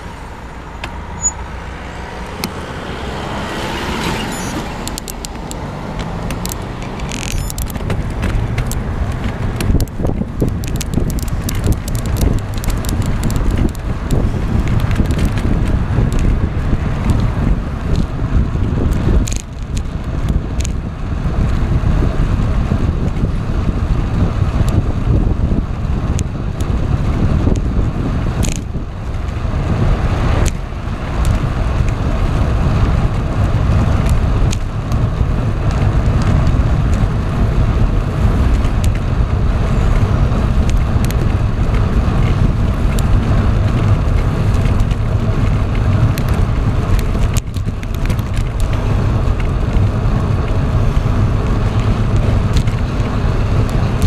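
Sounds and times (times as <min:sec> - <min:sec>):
road rumble: 0:00.0 - 0:54.0
wind buffeting microphone: 0:00.0 - 0:54.0
sharp ticks: 0:04.4 - 0:16.3.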